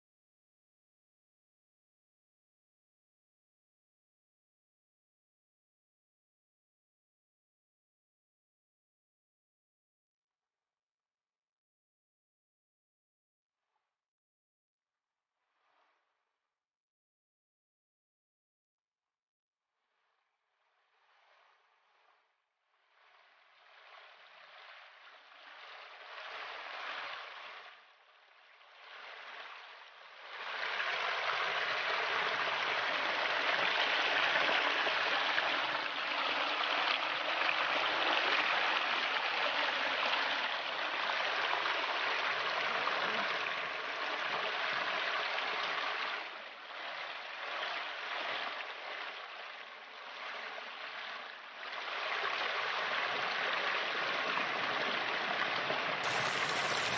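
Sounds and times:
waterfall splashing over rocks: 0:56.0 - 0:56.9.

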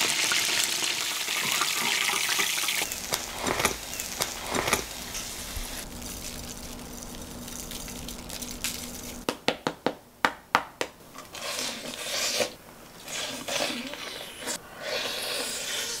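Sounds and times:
chewing: 0:05.8 - 0:09.2, 0:11.2 - 0:16.0
fried chicken crunching: 0:05.8 - 0:09.3.

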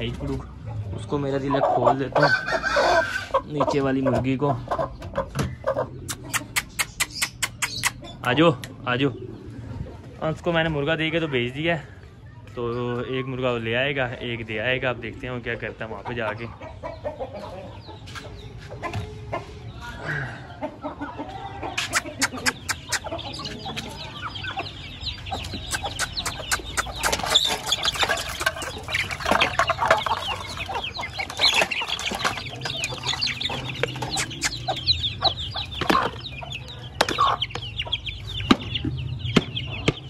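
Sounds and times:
chickens clucking: 0:00.0 - 0:40.0
chicks cheeping: 0:00.0 - 0:40.0
sharp clicks: 0:06.1 - 0:08.0, 0:25.5 - 0:28.0, 0:33.8 - 0:34.8.

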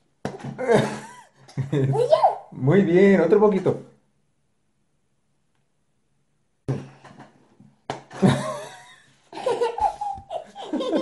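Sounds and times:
laughter: 0:00.6 - 0:01.9, 0:08.2 - 0:11.0.

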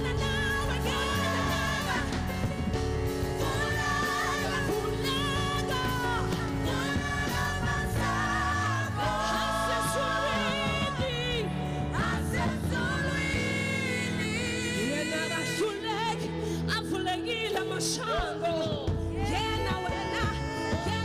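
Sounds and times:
backing singers: 0:00.0 - 0:16.2
gospel band playing: 0:00.0 - 0:21.0
lead singer with vibrato: 0:00.0 - 0:21.0.

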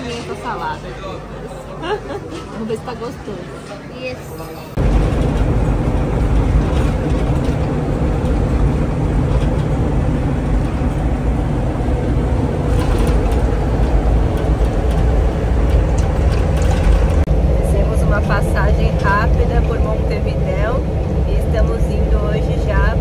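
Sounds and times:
engine and road noise rumble: 0:00.0 - 0:23.0.

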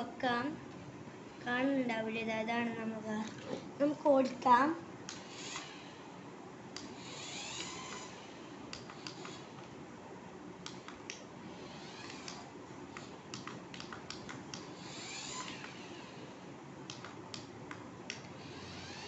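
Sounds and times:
toy car electric motor whirring: 0:05.2 - 0:06.0, 0:06.9 - 0:08.4, 0:09.0 - 0:09.5, 0:11.5 - 0:12.5, 0:14.7 - 0:16.3, 0:18.4 - 0:19.0
light clicks: 0:16.9 - 0:18.3.

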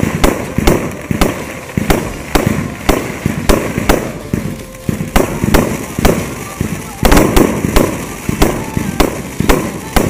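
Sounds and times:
fireworks bursts and bangs: 0:00.0 - 0:10.0.

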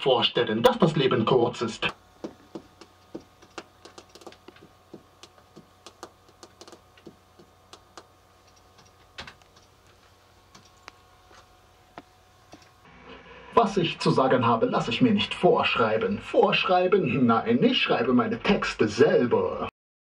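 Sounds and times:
faint hum: 0:00.0 - 0:19.7
keyboard clicking: 0:02.5 - 0:09.7.

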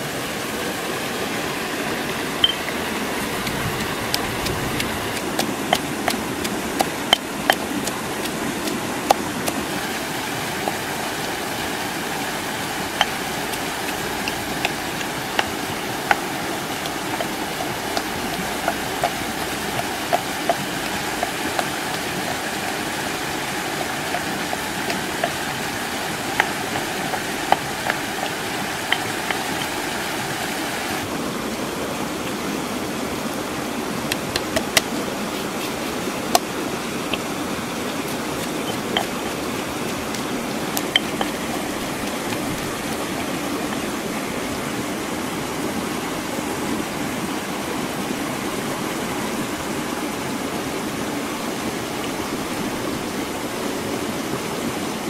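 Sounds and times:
stream rushing: 0:00.0 - 0:55.0
stone pestle pounding in mortar: 0:02.4 - 0:10.9, 0:12.8 - 0:30.4, 0:34.1 - 0:35.0, 0:38.0 - 0:43.8.

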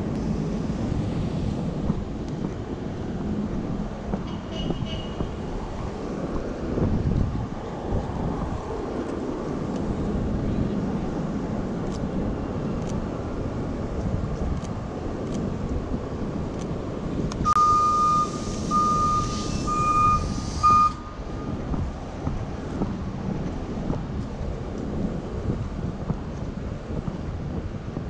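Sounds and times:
city street rumble: 0:00.0 - 0:28.0
vehicle warning beeper: 0:17.5 - 0:21.6.

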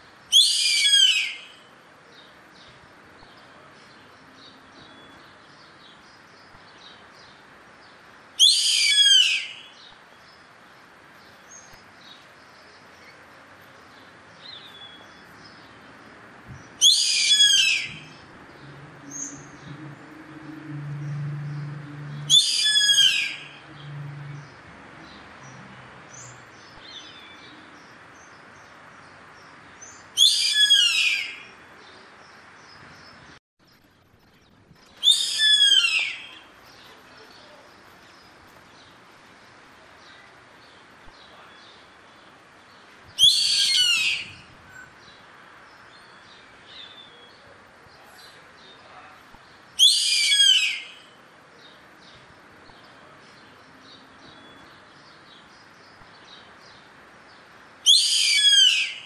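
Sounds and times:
caracara high-pitched calls: 0:00.3 - 0:01.6, 0:08.4 - 0:09.8, 0:16.8 - 0:18.2, 0:22.1 - 0:24.2, 0:30.2 - 0:31.5, 0:35.0 - 0:36.5, 0:43.2 - 0:44.9, 0:49.8 - 0:51.2, 0:57.8 - 0:59.0
low hum: 0:18.1 - 0:22.3
small birds chirping: 0:21.0 - 0:59.0.

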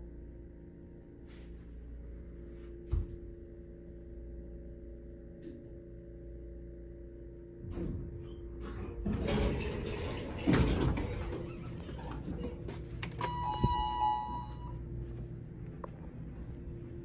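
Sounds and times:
elevator doors sliding open: 0:07.8 - 0:14.7
short electronic beep: 0:13.1 - 0:14.8.

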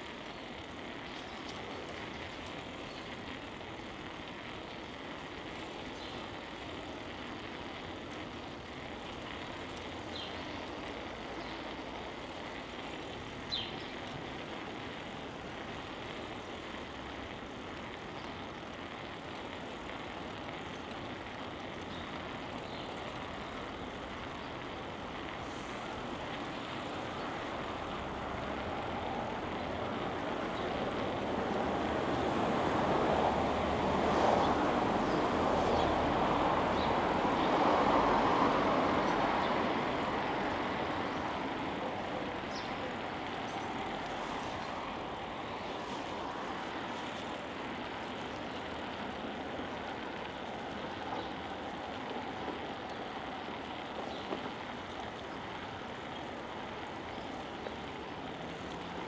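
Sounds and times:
traffic noise: 0:00.0 - 0:59.0
vehicle passing: 0:30.4 - 0:42.2.

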